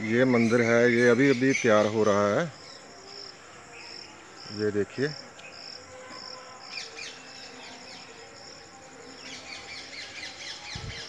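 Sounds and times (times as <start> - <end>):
birds chirping: 0.0 - 5.9
insects trilling: 0.0 - 11.0.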